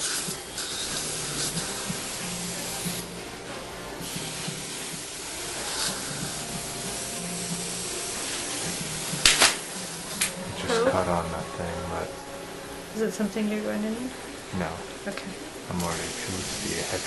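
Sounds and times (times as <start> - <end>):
burst of hiss: 0.0 - 3.2, 4.0 - 10.4, 15.7 - 17.0
steady hiss: 0.0 - 17.0
faint low hum: 0.3 - 17.0.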